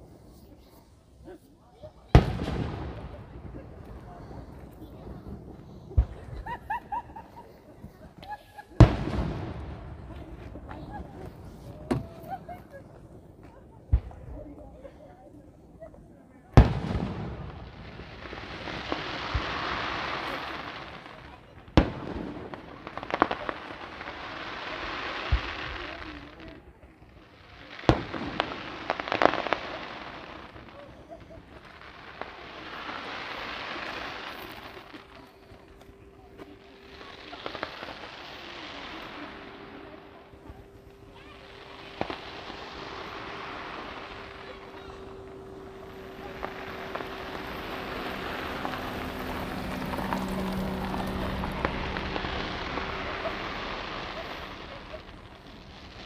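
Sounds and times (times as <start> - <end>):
fireworks crackling: 0.0 - 56.0
fireworks bang: 2.1 - 12.6, 16.5 - 23.9, 31.2 - 56.0
steady hiss: 28.6 - 56.0.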